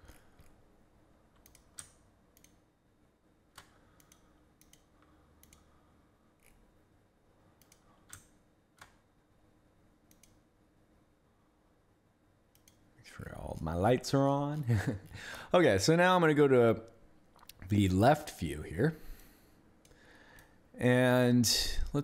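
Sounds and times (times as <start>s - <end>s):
faint low hum: 0.0s - 22.0s
computer mouse clicks: 1.3s - 2.6s, 3.5s - 5.8s, 7.6s - 9.0s, 10.1s - 10.4s, 12.5s - 12.9s.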